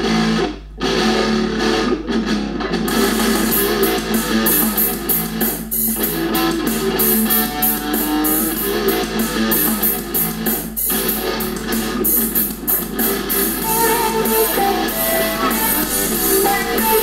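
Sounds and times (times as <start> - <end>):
guitar music from laptop speakers: 0.0 - 17.0
quick high tapping beat: 2.9 - 17.0.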